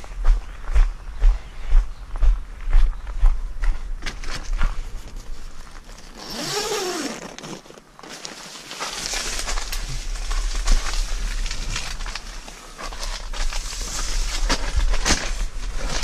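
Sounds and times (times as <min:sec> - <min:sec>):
footsteps on gravel: 0:00.0 - 0:16.0
nylon tent fabric rustling: 0:04.2 - 0:16.0
tent zip being pulled: 0:05.9 - 0:09.8.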